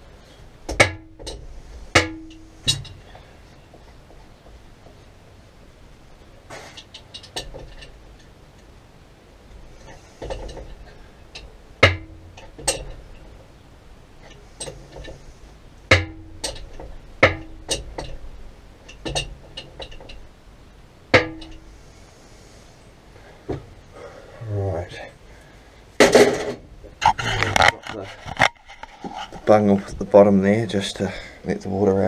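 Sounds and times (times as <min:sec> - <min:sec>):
metallic knocks on pipework: 0:00.7 - 0:03.0, 0:10.2 - 0:10.8, 0:11.4 - 0:13.3, 0:15.9 - 0:18.2, 0:18.9 - 0:20.2, 0:21.1 - 0:21.6.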